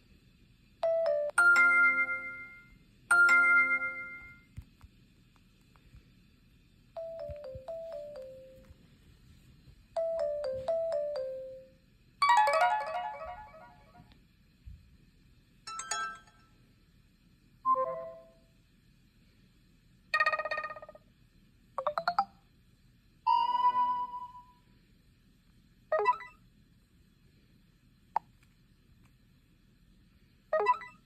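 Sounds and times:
phone notification chimes: 0:10.0 - 0:11.5.

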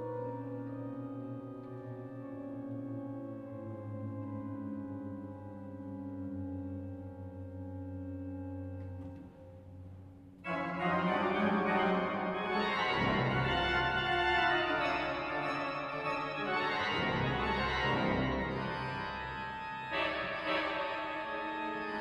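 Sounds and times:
pipe organ playing: 0:10.4 - 0:22.0.

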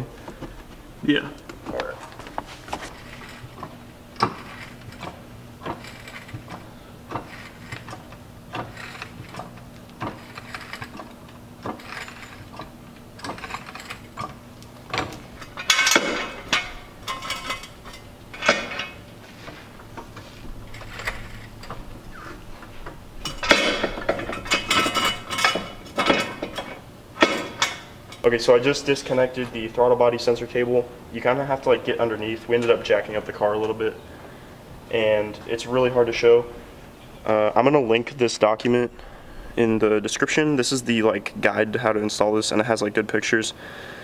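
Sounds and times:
loud clattering: 0:02.4 - 0:28.3
floor jack pumping clacks: 0:02.7 - 0:21.9.

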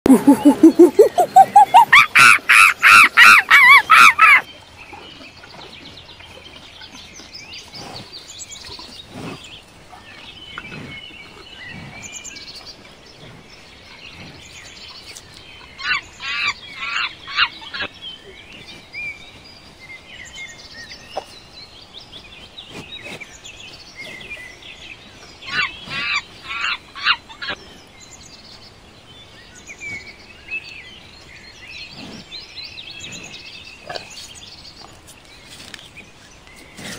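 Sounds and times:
quiet outdoor background: 0:00.0 - 0:36.9
rapid animal calls: 0:00.1 - 0:04.4.

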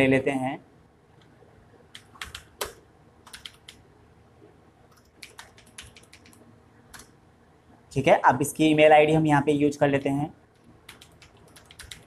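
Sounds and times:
typing on computer keyboard: 0:01.9 - 0:03.8, 0:04.9 - 0:07.1, 0:10.6 - 0:12.0.

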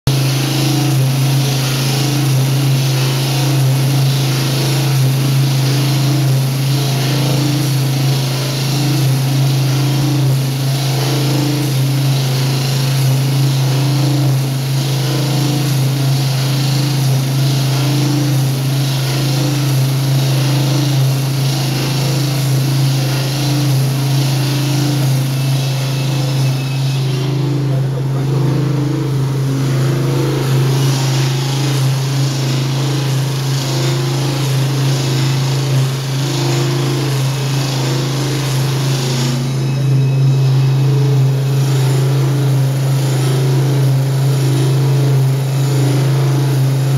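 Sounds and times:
saw motor hum: 0:00.1 - 0:46.9.

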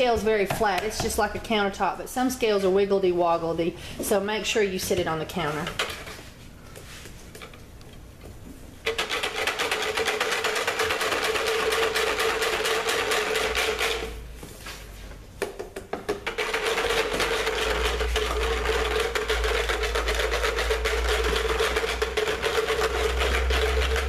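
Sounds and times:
whisk rattling in plastic pitcher: 0:08.8 - 0:14.2, 0:16.0 - 0:24.0.

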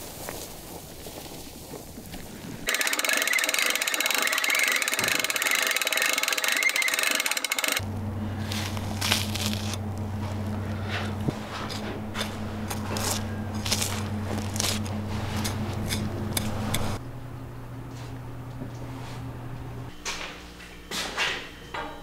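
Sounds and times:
hand-crank winch ratcheting: 0:02.7 - 0:07.8
steady low hum: 0:07.7 - 0:22.0.

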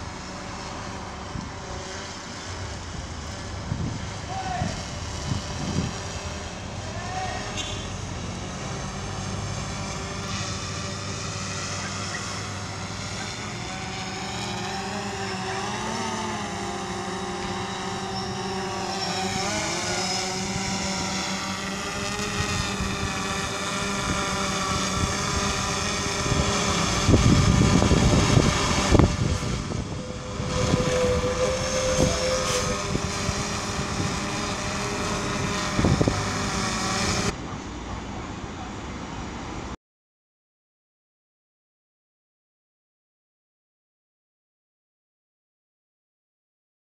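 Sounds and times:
drone propellers whining: 0:00.0 - 0:39.8
low rumble of rotor downwash: 0:00.0 - 0:39.8.

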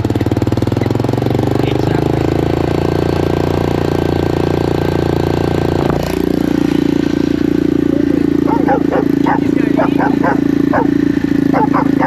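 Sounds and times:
single-cylinder engine running: 0:00.0 - 0:12.0.

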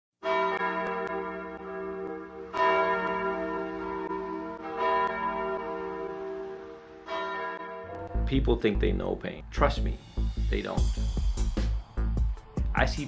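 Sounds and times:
deep bell tolling: 0:00.2 - 0:09.2.

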